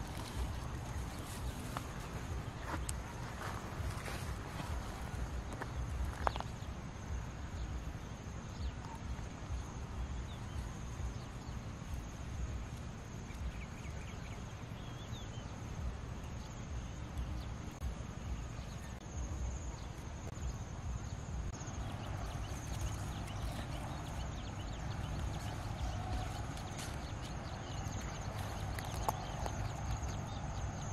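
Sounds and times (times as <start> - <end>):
faint chirps: 0.0 - 30.9
insect high-pitched drone: 0.0 - 30.9.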